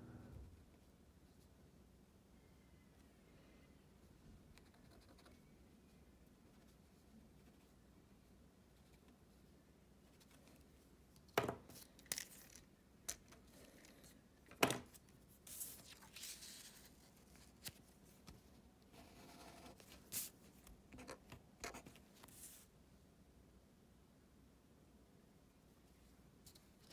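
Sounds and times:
paper rustling: 14.9 - 18.5.

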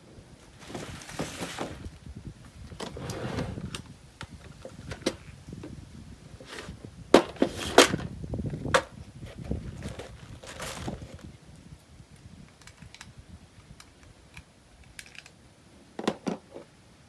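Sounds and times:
items clacking on wooden bench: 16.0 - 16.7.

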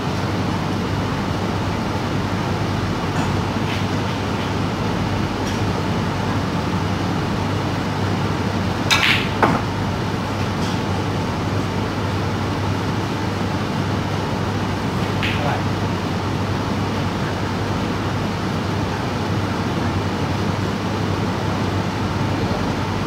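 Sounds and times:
steady low hum: 0.0 - 23.0
snooker balls clicking: 8.9 - 9.7, 15.0 - 15.7
cue striking ball: 8.9 - 9.8, 15.0 - 15.7.

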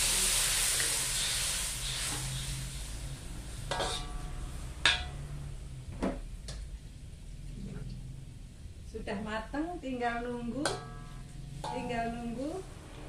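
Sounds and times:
water sizzling in hot wok: 0.0 - 5.3
low steady hum: 2.7 - 13.0
spatula clinking against wok: 3.7 - 5.3, 10.6 - 12.1.

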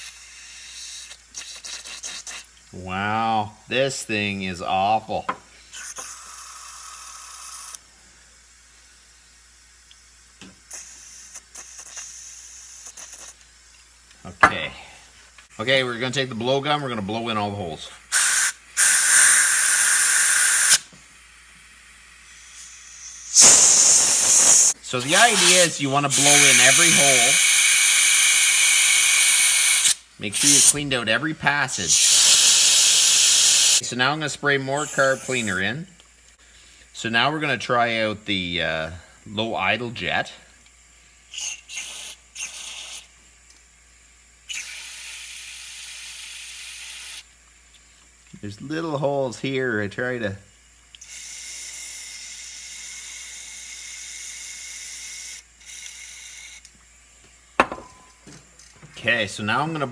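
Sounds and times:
aerosol spray hissing: 0.0 - 2.5, 5.7 - 7.8, 10.7 - 13.4, 18.1 - 21.0, 22.2 - 30.8, 31.8 - 33.8, 34.8 - 35.6
compressed air blasting: 0.0 - 2.5, 5.6 - 7.8, 10.6 - 13.4, 18.1 - 20.9, 22.2 - 30.9, 31.8 - 33.8, 34.8 - 35.7, 41.3 - 43.1.

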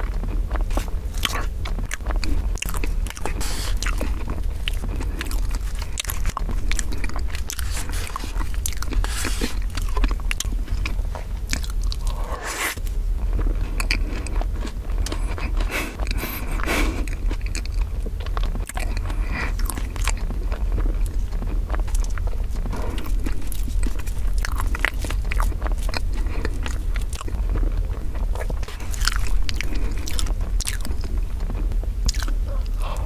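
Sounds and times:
wet chewing: 0.0 - 33.0
fork scraping a wooden board: 12.2 - 12.8.

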